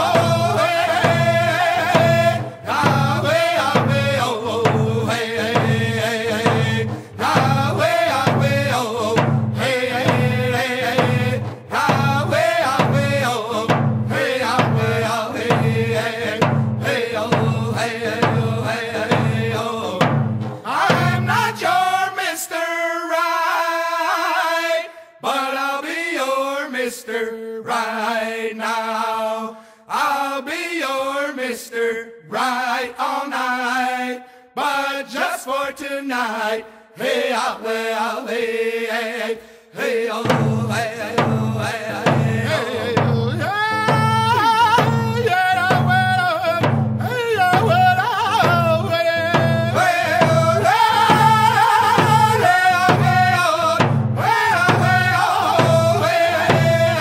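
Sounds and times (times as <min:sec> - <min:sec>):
people singing: 0:00.0 - 0:57.0
hand drum beat: 0:40.3 - 0:57.0.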